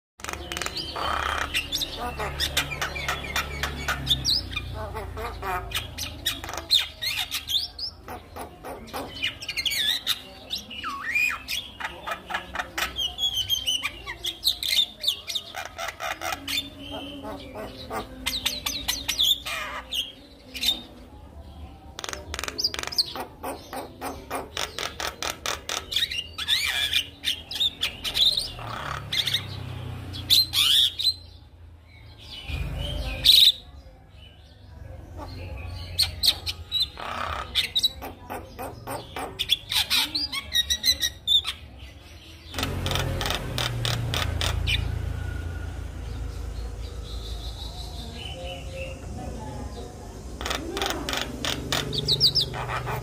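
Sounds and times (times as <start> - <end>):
bird singing with clicks and whistles: 21.9 - 29.5.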